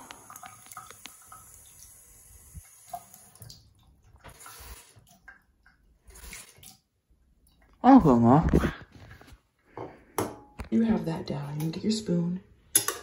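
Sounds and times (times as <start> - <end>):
faucet running into sink: 0.0 - 5.3.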